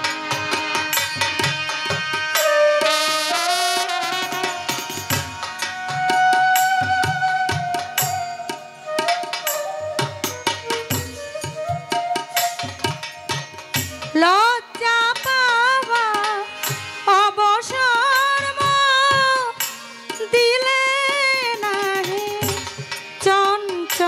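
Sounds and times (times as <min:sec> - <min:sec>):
woman singing: 0:14.0 - 0:24.0.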